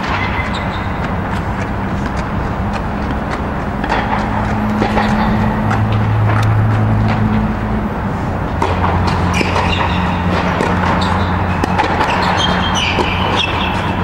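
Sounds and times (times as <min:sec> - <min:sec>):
blower mechanical drone: 0:00.0 - 0:14.0
high squeaks: 0:00.0 - 0:14.0.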